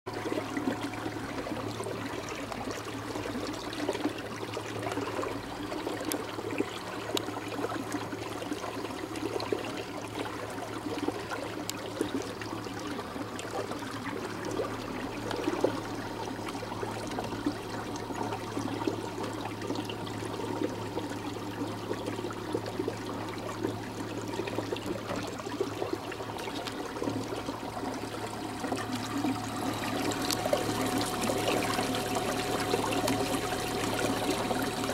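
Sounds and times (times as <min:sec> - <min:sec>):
low motor hum: 0:00.1 - 0:34.9.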